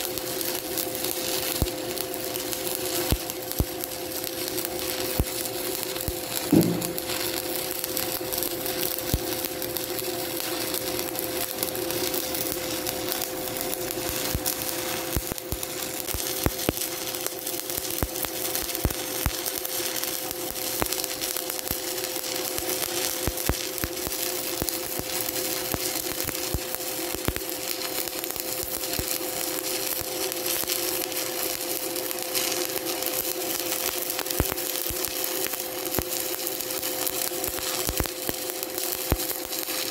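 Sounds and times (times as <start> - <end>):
welding arc crackling: 0.0 - 39.9
steady hum: 0.9 - 17.1.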